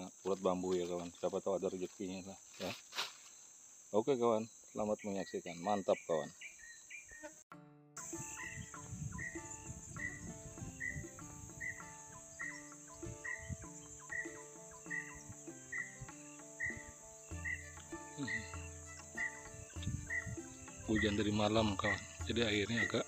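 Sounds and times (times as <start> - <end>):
insects droning: 0.0 - 7.4, 8.0 - 23.0
soft background music: 7.6 - 23.0.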